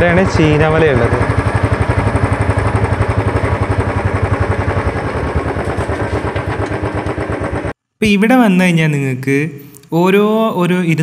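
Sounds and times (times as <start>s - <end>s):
motorcycle engine running: 0.0s - 7.8s.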